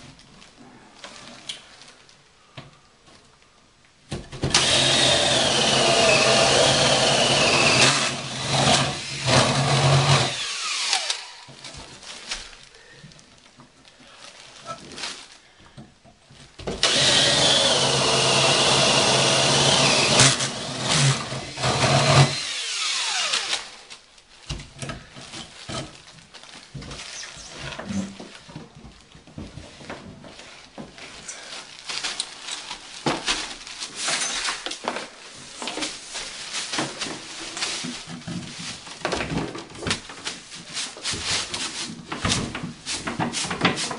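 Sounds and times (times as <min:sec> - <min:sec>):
knocks and rustling of materials: 0:00.0 - 0:04.8, 0:10.9 - 0:17.1, 0:22.9 - 0:43.9
power tool running: 0:04.5 - 0:11.4, 0:16.8 - 0:23.8.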